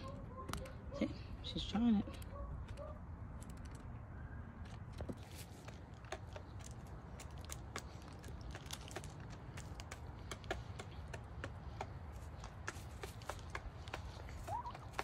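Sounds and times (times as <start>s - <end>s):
beaks tapping on plastic: 5.6s - 15.0s.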